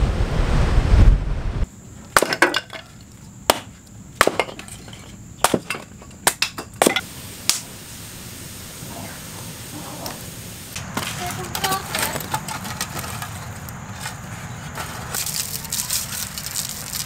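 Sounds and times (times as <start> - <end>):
blade chopping kindling on wood: 3.5 - 7.0.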